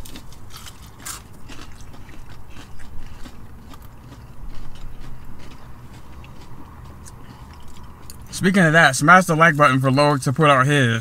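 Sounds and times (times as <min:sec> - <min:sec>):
chewing crispy chicken: 0:00.0 - 0:08.5.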